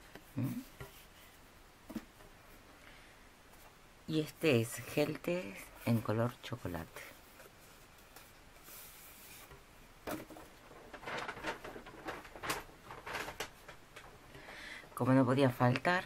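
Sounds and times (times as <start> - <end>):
cloth and paper rustling: 4.8 - 14.2.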